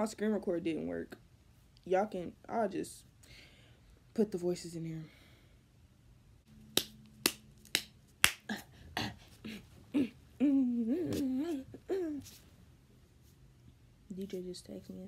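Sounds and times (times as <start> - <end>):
fingers snapping: 6.7 - 8.4.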